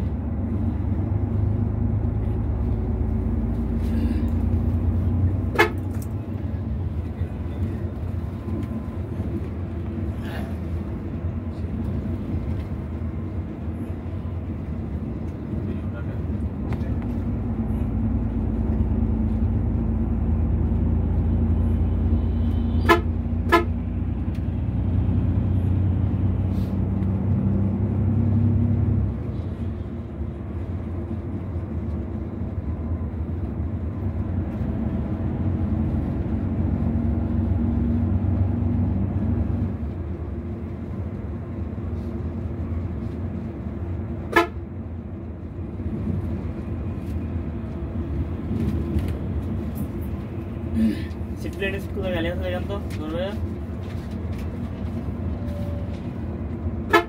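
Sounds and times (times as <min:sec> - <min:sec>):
bus engine and road drone: 0:00.0 - 0:57.0
horn toots: 0:05.5 - 0:06.0, 0:22.4 - 0:23.8, 0:44.3 - 0:44.6.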